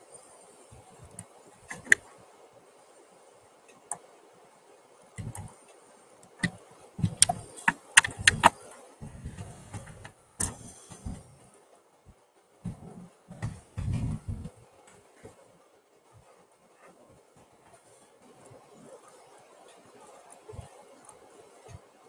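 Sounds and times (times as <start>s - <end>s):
sharp clicks and knocks: 1.1s - 2.0s, 5.2s - 5.5s, 6.4s - 11.2s
dull thuds: 12.7s - 14.6s.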